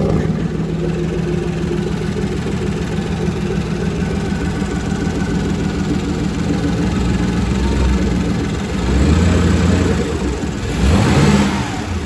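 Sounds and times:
inboard marine engine running: 0.0 - 12.0.

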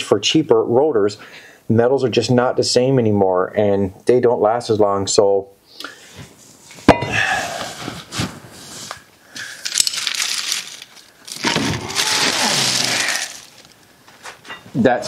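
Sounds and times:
scraping and rustling: 7.7 - 14.7.

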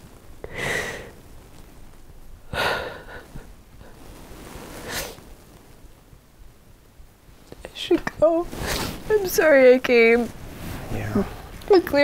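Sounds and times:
person breathing heavily: 0.4 - 1.2, 2.5 - 4.0.

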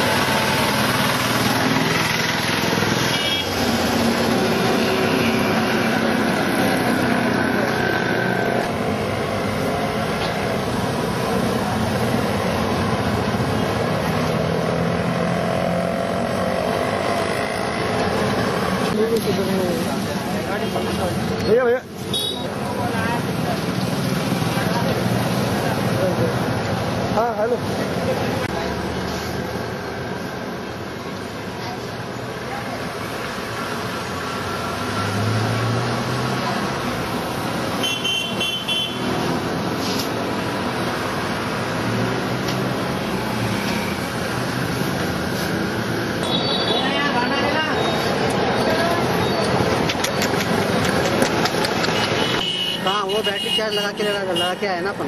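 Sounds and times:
motorcycle engines passing: 0.0 - 31.4, 32.4 - 53.4
traffic din: 0.0 - 55.0.

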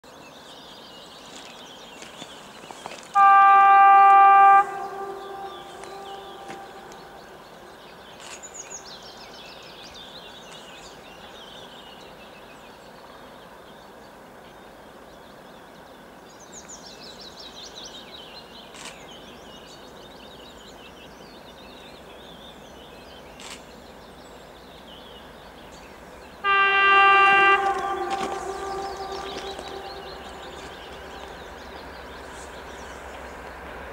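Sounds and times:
low background noise: 0.0 - 33.9
locomotive horn blast: 3.1 - 7.8, 26.4 - 32.5
birds singing descending trills: 3.2 - 9.3, 26.4 - 33.4.

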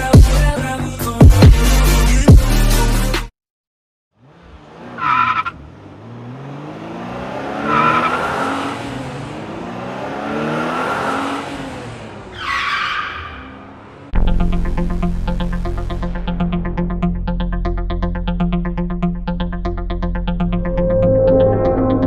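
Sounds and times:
sports car engine revving: 4.2 - 12.4
electronic music: 14.2 - 22.0.

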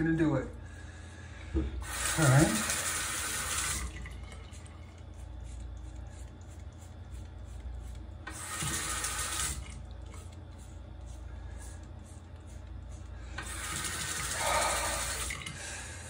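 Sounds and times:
sink tap running: 1.8 - 10.6, 12.3 - 15.7.

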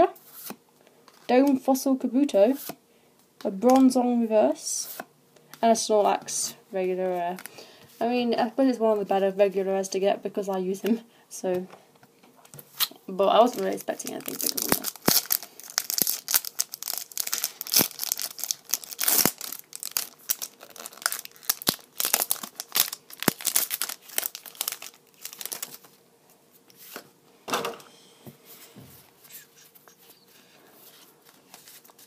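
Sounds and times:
cards rustling: 12.8 - 26.0, 30.8 - 32.0
foil wrapper crinkling and tearing: 12.8 - 26.0.

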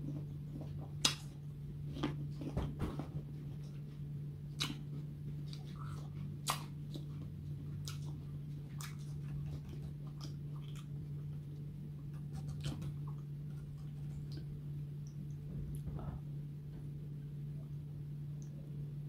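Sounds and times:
apple crunching chewing: 0.0 - 2.6, 3.2 - 15.9
steady low hum: 0.0 - 19.0.

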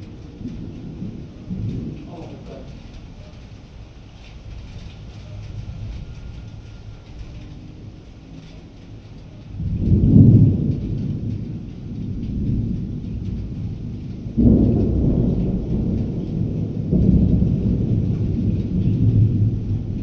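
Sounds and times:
rolling thunder: 0.0 - 20.0.

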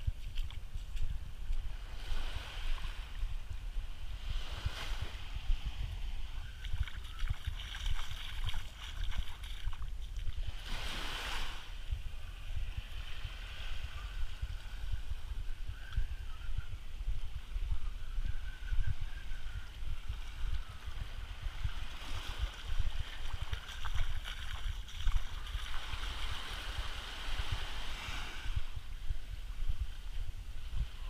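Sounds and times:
wind buffeting microphone: 0.0 - 31.0
small waves lapping on shore: 0.1 - 3.2, 3.9 - 11.9, 20.1 - 29.0.

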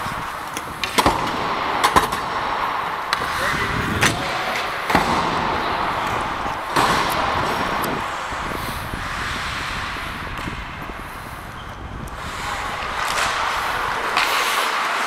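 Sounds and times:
skates scraping on ice: 0.0 - 15.0
sharp knocks of stick and puck: 0.5 - 8.3, 12.1 - 15.0.

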